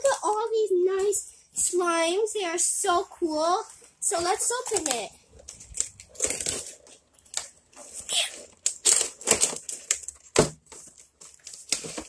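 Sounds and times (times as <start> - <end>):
packaging tearing and crinkling: 4.6 - 12.0.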